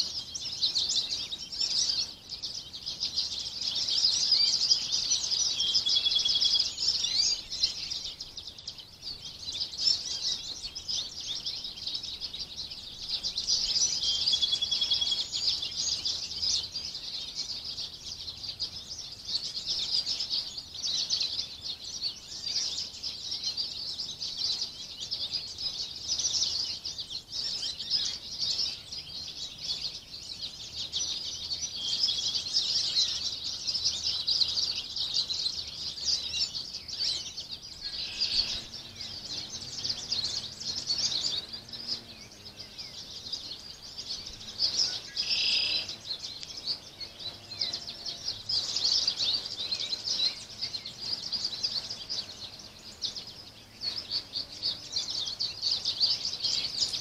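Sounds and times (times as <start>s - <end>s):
songbirds chorus: 0.0s - 57.0s.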